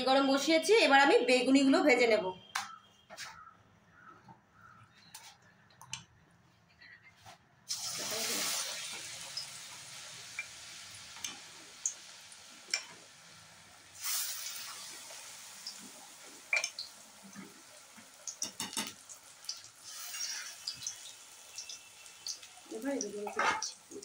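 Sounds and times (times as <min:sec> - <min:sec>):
food sizzling in hot oil: 0:07.7 - 0:24.0.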